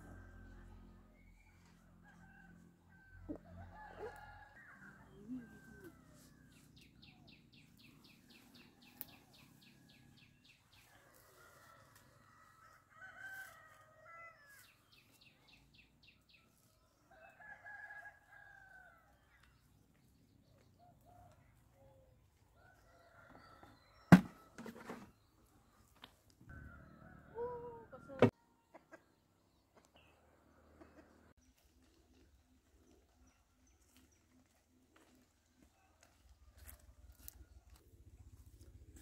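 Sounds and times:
roosters crowing: 0:10.9 - 0:14.7.

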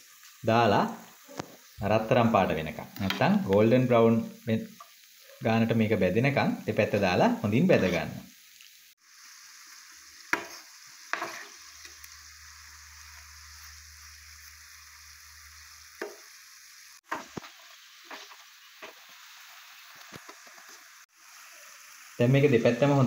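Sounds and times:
dough frying in hot oil: 0:00.0 - 0:23.0.

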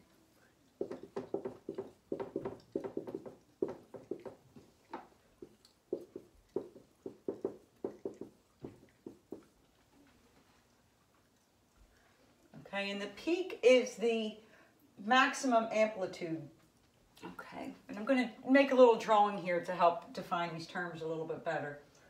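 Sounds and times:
pen tapping on hard surface: 0:00.8 - 0:09.5.

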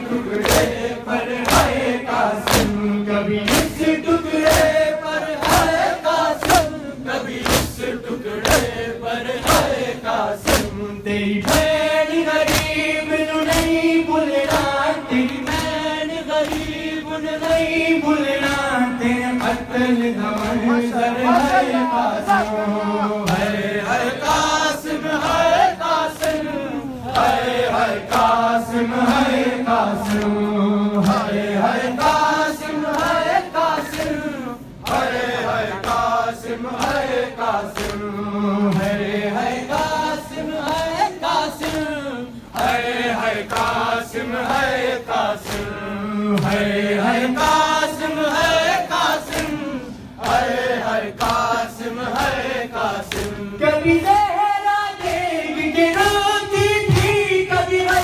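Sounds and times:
men chanting a lament: 0:00.0 - 0:58.0
chest-beating slaps: 0:00.3 - 0:02.8, 0:03.4 - 0:09.8, 0:10.4 - 0:15.8, 0:16.4 - 0:17.8, 0:37.7 - 0:38.1, 0:45.4 - 0:45.8, 0:53.0 - 0:53.4.

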